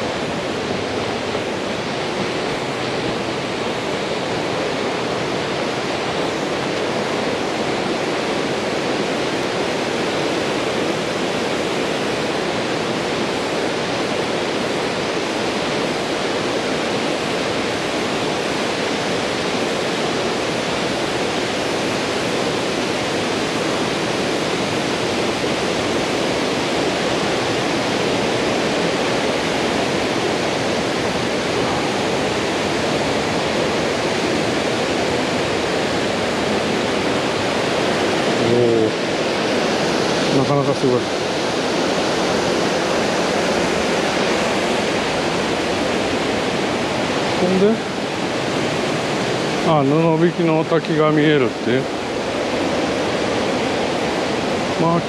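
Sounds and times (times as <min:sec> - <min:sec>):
river rushing over waterfalls: 0:00.0 - 0:55.0.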